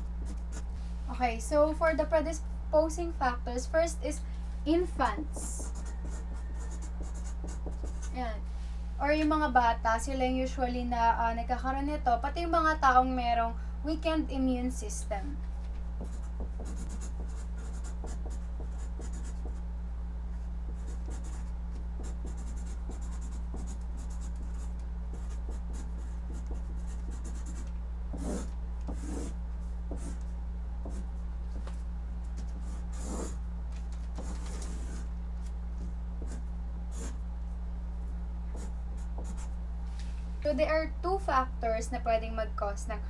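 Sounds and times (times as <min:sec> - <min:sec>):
marker pen scratching on paper: 0:00.0 - 0:00.6, 0:05.3 - 0:08.2, 0:16.0 - 0:19.6, 0:20.7 - 0:33.4, 0:34.0 - 0:37.2, 0:38.5 - 0:39.6
low hum: 0:00.0 - 0:43.0.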